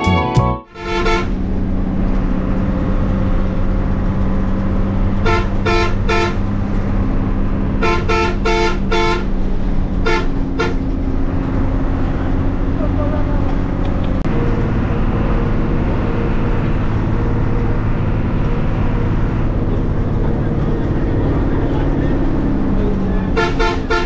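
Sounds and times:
bus horn toots: 0.0s - 1.6s, 5.1s - 6.6s, 7.7s - 11.1s, 22.8s - 24.0s
bus engine drone and road noise: 0.0s - 24.0s.

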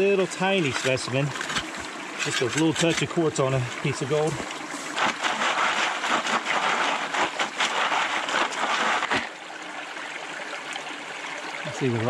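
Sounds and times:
water sloshing in a pan: 0.0s - 9.4s
creek running water: 0.0s - 12.0s.

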